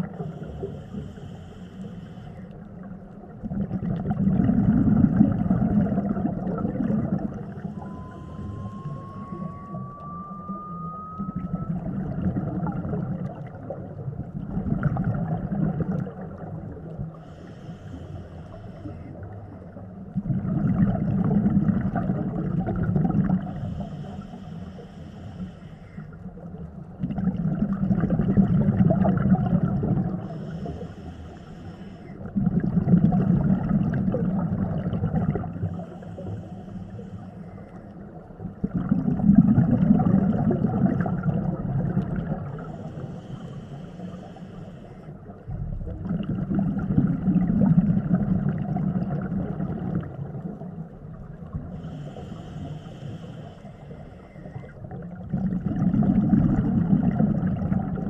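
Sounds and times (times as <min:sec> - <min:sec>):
regulator inhale hiss: 0:00.0 - 0:02.9, 0:07.4 - 0:09.6, 0:17.1 - 0:19.8, 0:23.4 - 0:26.4, 0:30.2 - 0:32.3, 0:35.6 - 0:38.2, 0:42.4 - 0:45.5, 0:51.5 - 0:54.8
exhaled air bubbling: 0:00.0 - 0:58.0.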